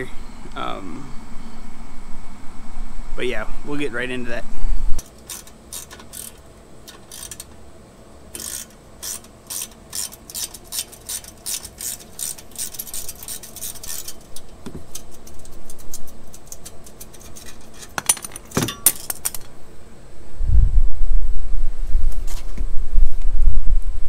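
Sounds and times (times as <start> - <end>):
hand tool clicking on metal: 5.0 - 7.6, 8.3 - 19.5.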